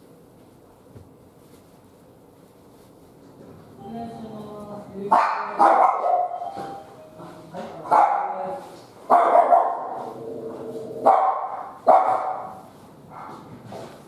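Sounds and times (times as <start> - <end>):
dog barking: 5.1 - 6.4, 7.8 - 10.2, 11.0 - 13.4.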